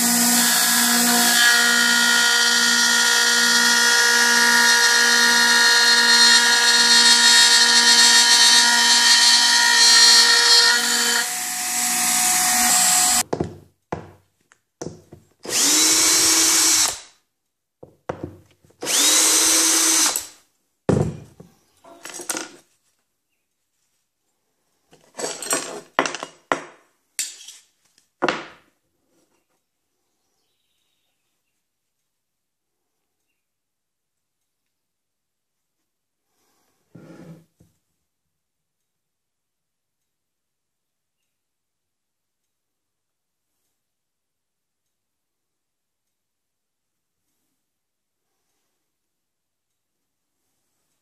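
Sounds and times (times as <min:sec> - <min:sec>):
cordless drill bursts: 0:00.0 - 0:13.2, 0:15.5 - 0:17.1, 0:18.8 - 0:20.3
router spindle whining: 0:00.0 - 0:13.2, 0:15.5 - 0:17.0, 0:18.8 - 0:20.3.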